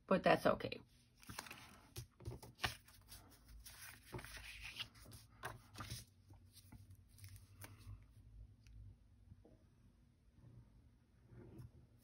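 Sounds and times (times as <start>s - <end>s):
cardstock rustling and sliding: 1.2s - 7.7s.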